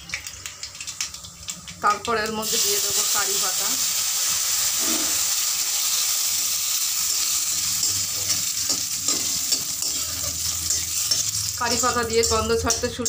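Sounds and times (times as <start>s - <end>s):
seeds sizzling in hot oil: 0.0s - 13.0s
spatula scraping pan: 4.7s - 5.3s, 7.2s - 13.0s.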